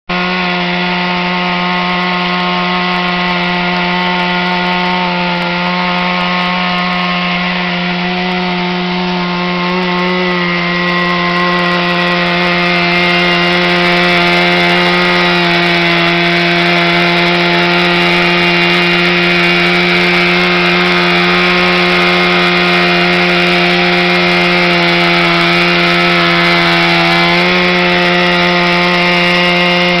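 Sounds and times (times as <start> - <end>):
chainsaw cutting a tree trunk: 0.1 - 30.0.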